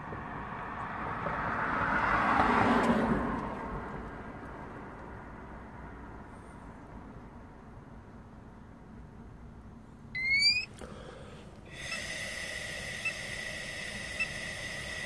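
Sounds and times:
short rising beep: 10.2 - 10.7
steady high tone: 10.2 - 10.7
breath blown through mouthpiece: 10.2 - 15.0.

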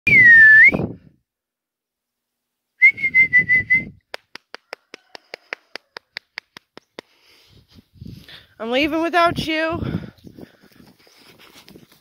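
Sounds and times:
person whistling: 0.1 - 1.0, 2.8 - 4.0.

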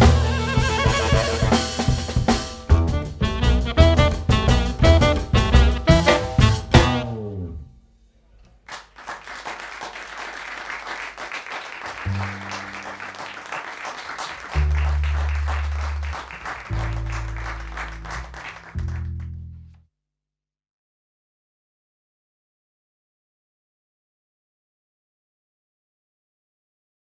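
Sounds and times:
audience applauding: 0.0 - 1.8, 8.6 - 19.4
jazz trio final note: 0.0 - 7.6, 12.0 - 13.6, 14.5 - 19.5
low held notes: 12.1 - 13.4, 14.5 - 19.7.

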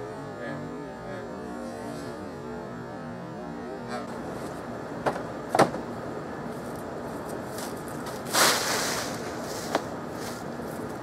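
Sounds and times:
outdoor background noise: 0.0 - 11.0
scraping rustle: 6.6 - 11.0.

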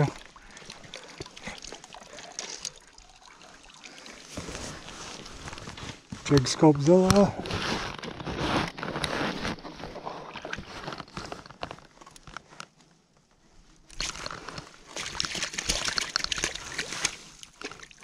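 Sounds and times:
water splashing against rocks: 13.9 - 18.0.

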